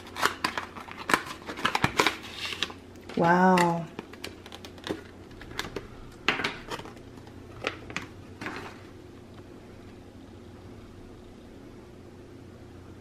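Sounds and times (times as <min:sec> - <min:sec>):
ornament clicks and plastic rustles: 0:00.0 - 0:08.8
low room hum: 0:00.0 - 0:13.0.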